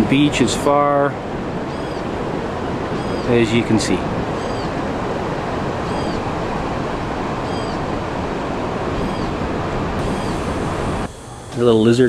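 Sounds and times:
waves breaking on beach: 0:00.0 - 0:11.1
faint high chirp: 0:03.0 - 0:03.3, 0:05.8 - 0:06.2.

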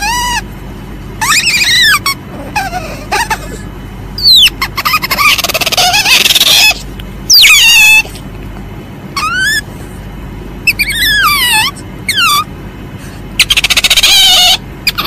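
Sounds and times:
civet high-pitched calls: 0:00.0 - 0:00.5, 0:01.2 - 0:03.3, 0:04.2 - 0:08.1, 0:09.2 - 0:09.7, 0:10.6 - 0:12.5, 0:13.4 - 0:15.0
rapid chattering pulses: 0:04.2 - 0:08.1, 0:13.4 - 0:15.0.

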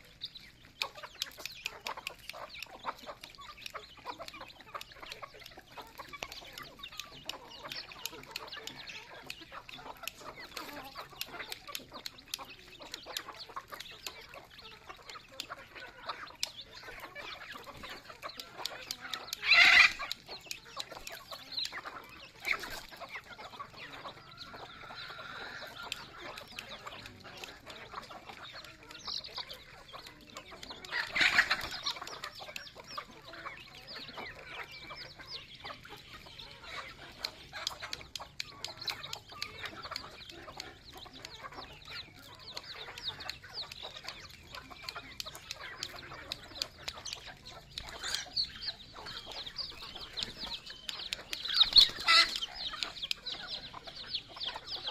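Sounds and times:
chickens clucking: 0:00.0 - 0:54.9
loud chicken call: 0:19.0 - 0:20.2, 0:51.4 - 0:53.0.

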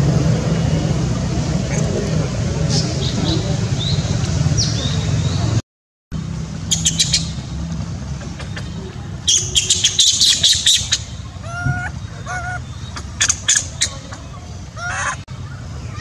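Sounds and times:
steady low rumble: 0:00.0 - 0:05.6, 0:06.2 - 0:16.0
high-pitched chirping and squeaking: 0:09.3 - 0:15.3.

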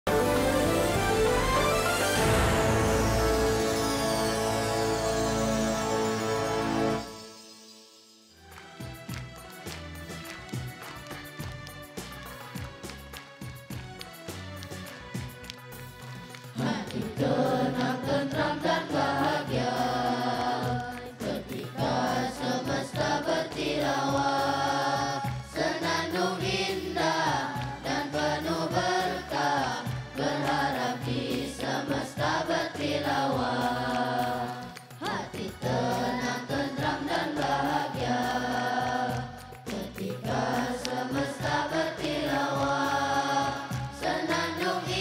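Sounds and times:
musical accompaniment: 0:00.0 - 0:45.0
boys' choir singing: 0:16.5 - 0:45.0.

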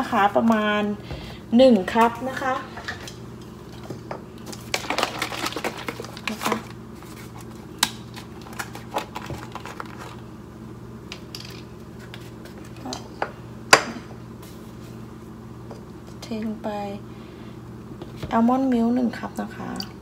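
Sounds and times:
carton clicks and rustles: 0:04.4 - 0:10.2.

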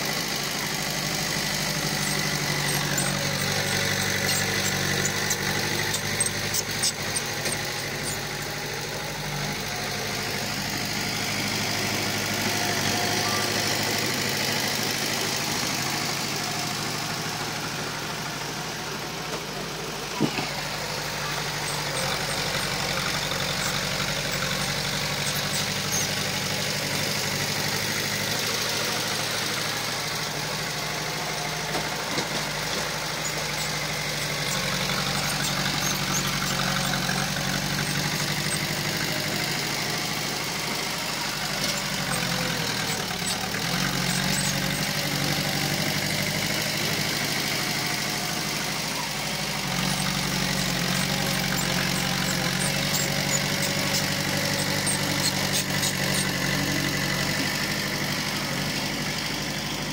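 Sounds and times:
heavy machinery diesel engine: 0:00.0 - 0:59.9.

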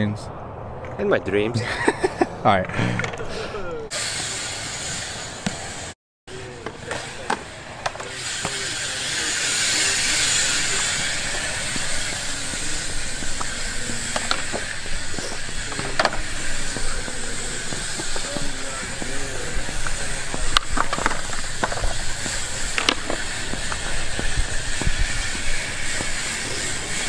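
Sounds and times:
bike tyres hissing on concrete: 0:03.3 - 0:27.0
bike clicks and knocks: 0:06.4 - 0:27.0.

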